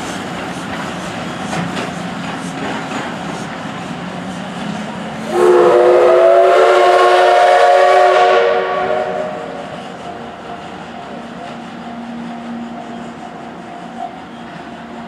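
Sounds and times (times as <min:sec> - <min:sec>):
moving train running noise: 0:00.0 - 0:15.0
steam locomotive whistle: 0:05.2 - 0:10.2.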